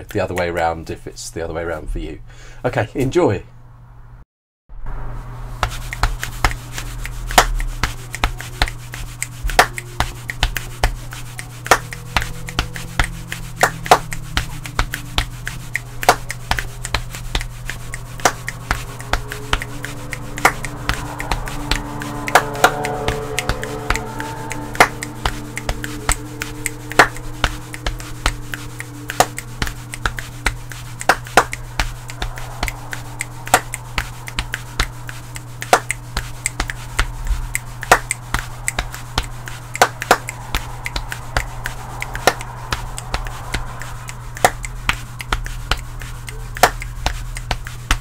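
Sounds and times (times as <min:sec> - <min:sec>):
hands clapping: 0:00.0 - 0:00.7, 0:05.6 - 0:48.0
finger clicks: 0:05.6 - 0:48.0
hands rubbing on body: 0:05.6 - 0:48.0.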